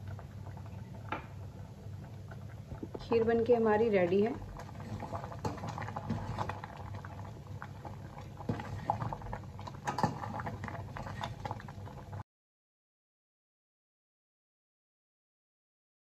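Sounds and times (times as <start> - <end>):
thick pudding bubbling in a pot: 0.0 - 12.2.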